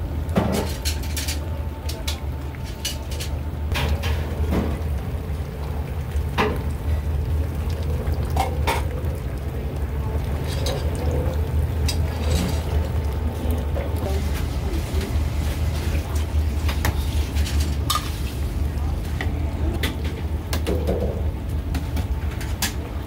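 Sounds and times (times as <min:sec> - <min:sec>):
low hum: 0:00.0 - 0:22.3
metal utensils clinking on pots: 0:10.2 - 0:13.1.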